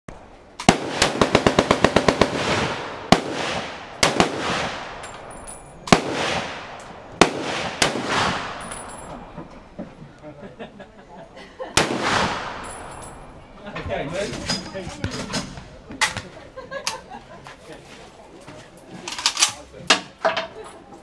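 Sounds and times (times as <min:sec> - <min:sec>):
single rifle shots echoing: 0:00.6 - 0:09.3, 0:11.8 - 0:13.1
automatic gunfire burst: 0:00.7 - 0:04.8.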